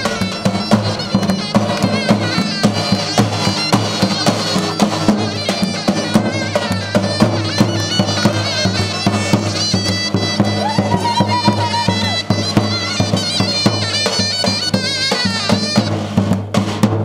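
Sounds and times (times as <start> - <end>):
shrill reedy zurna melody: 0.0 - 16.2.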